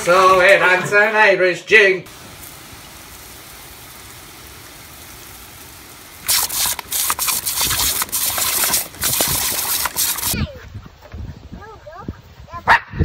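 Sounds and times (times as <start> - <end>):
faint steady hiss: 1.6 - 10.4
water jet splashing: 2.1 - 10.4.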